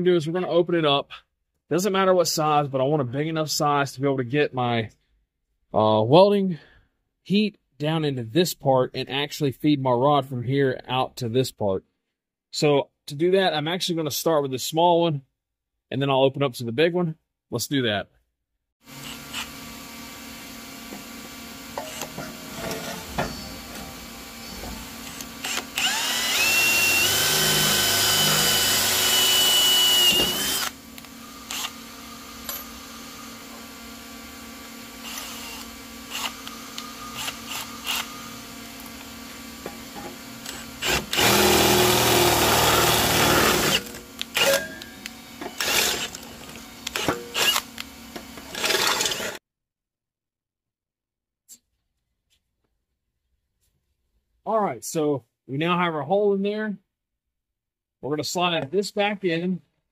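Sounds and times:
cordless drill boring through metal: 18.8s - 49.4s.

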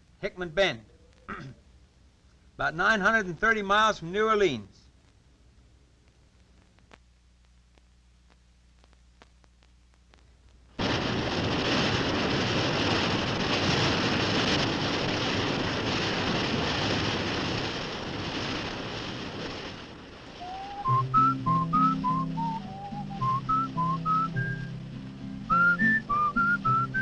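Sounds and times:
whistled tune: 20.4s - 24.8s, 25.4s - 27.0s
low accompanying notes: 20.4s - 27.0s.

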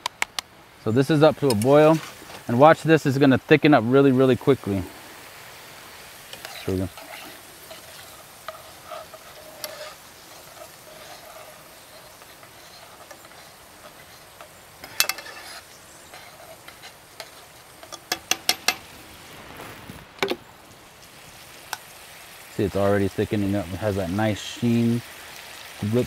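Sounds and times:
gravy bubbling and sizzling: 0.8s - 26.0s
metal spoon stirring gravy: 6.0s - 18.8s.

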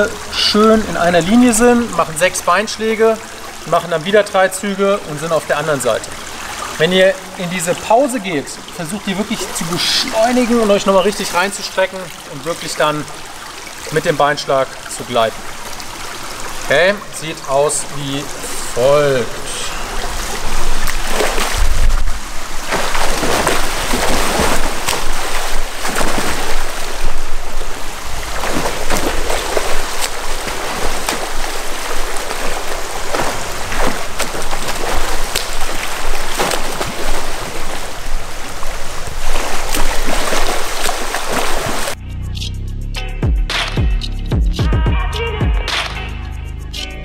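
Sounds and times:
swimmer splashing water: 0.0s - 42.0s
music: 42.0s - 47.0s.

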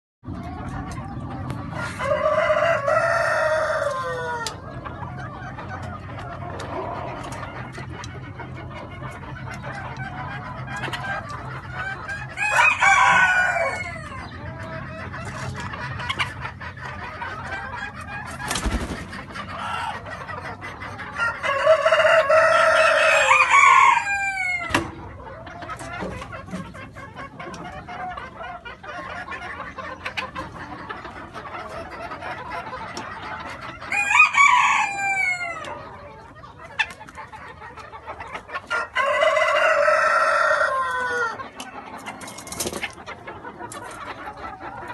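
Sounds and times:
hens clucking: 0.2s - 44.9s
roosters crowing: 1.6s - 4.8s, 11.3s - 14.5s, 18.6s - 20.1s, 21.0s - 25.3s, 33.7s - 36.2s, 38.6s - 42.6s.

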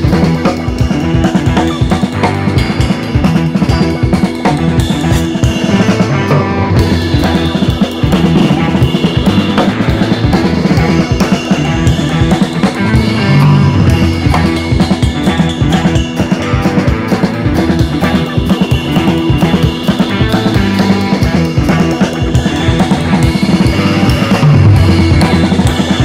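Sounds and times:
drum beat: 0.0s - 26.0s
held instrumental tones: 0.0s - 26.0s.

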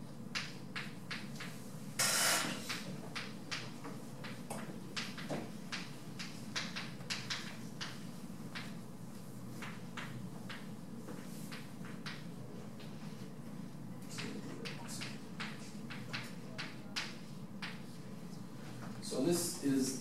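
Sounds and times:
low room hum: 0.0s - 20.0s
chalk tapping on chalkboard: 9.5s - 13.3s, 14.1s - 18.0s.

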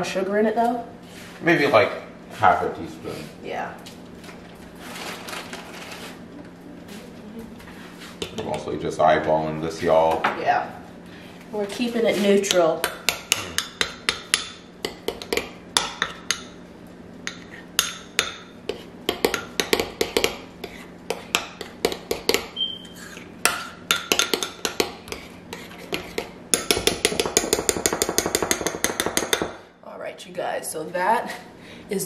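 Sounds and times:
utensil clinking against ceramic bowl: 21.3s - 25.2s.

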